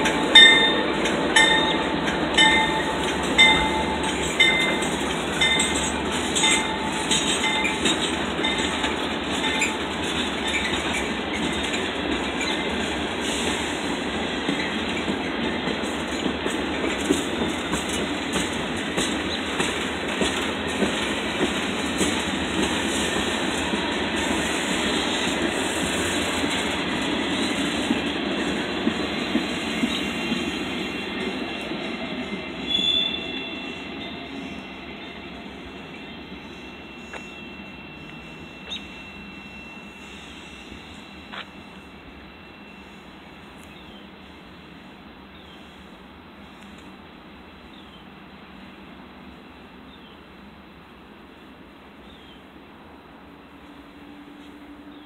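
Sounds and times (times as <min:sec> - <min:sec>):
locomotive bell ringing: 0:00.0 - 0:12.8, 0:32.4 - 0:43.4
train wheels clattering on rails: 0:00.0 - 0:45.4.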